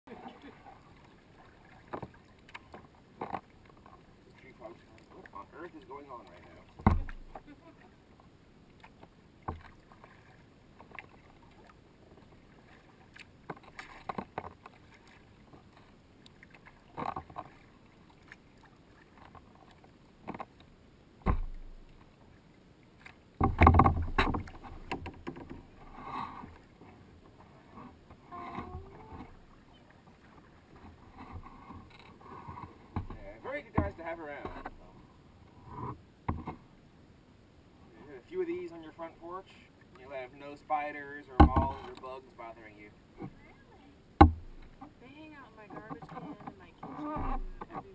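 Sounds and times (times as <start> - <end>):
paddle strokes splashing: 0.1 - 34.9, 38.2 - 47.9
paddle knocking against kayak: 6.2 - 7.5, 21.2 - 21.9, 23.4 - 25.9, 32.4 - 34.8, 36.3 - 36.6, 41.4 - 42.0, 44.2 - 45.0, 45.7 - 47.9.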